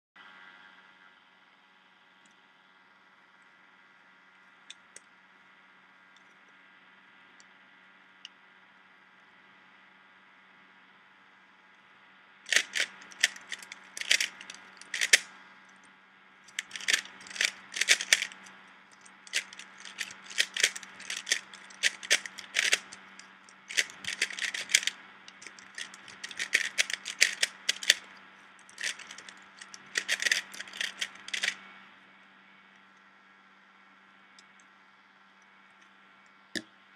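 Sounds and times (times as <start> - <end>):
puzzle cube clacking: 12.5 - 15.3, 16.5 - 31.6.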